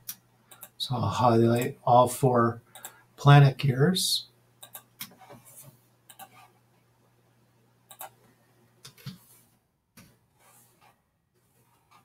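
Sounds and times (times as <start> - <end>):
mouse and keyboard clicking: 6.1 - 6.4, 7.9 - 8.2.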